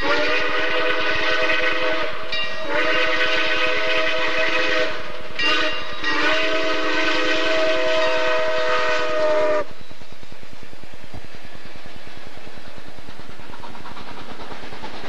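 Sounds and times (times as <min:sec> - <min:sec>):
steam locomotive chime whistle: 0:00.0 - 0:10.0
steam locomotive passing: 0:00.0 - 0:15.0.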